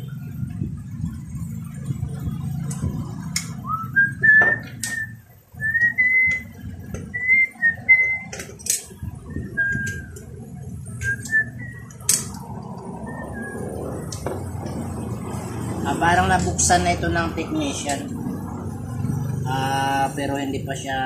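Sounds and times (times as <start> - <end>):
low background rumble: 0.0 - 20.8
sharp clicks of tools: 8.3 - 8.9, 11.0 - 12.4.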